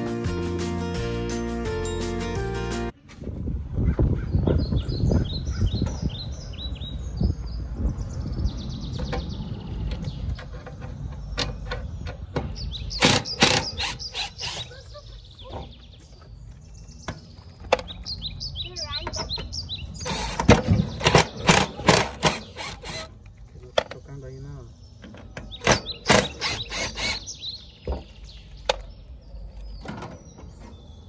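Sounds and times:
small birds chirping: 3.9s - 31.0s
power drill driving screws: 13.0s - 14.7s, 20.0s - 23.1s, 26.1s - 27.3s.

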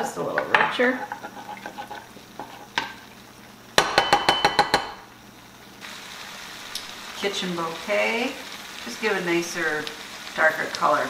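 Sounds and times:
faint sizzle of gravy: 5.0s - 11.0s.

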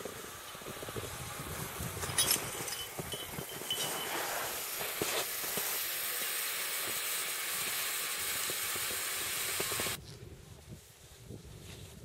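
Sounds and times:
steady high hiss: 0.0s - 10.0s.

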